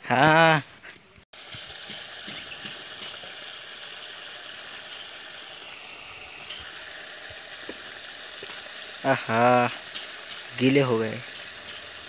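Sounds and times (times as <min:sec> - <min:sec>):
water spraying from hose: 0:01.4 - 0:12.0.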